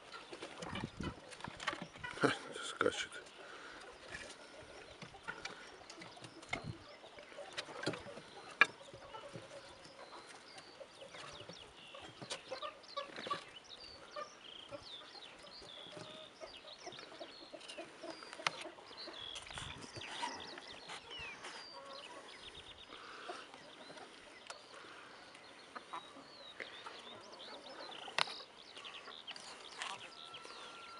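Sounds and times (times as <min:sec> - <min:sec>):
birds chirping: 0:00.0 - 0:30.9
chickens clucking: 0:00.0 - 0:30.9.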